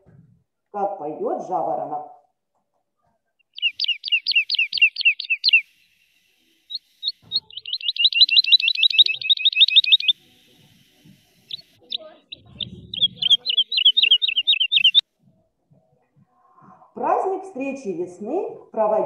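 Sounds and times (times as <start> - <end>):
skylark chirping and trilling: 3.4 - 6.0, 6.6 - 15.0.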